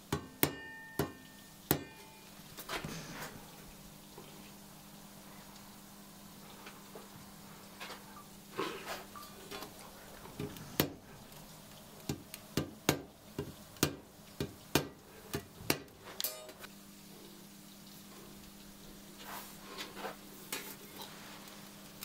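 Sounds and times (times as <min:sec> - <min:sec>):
hammer tapping saw blade: 0:00.1 - 0:02.1.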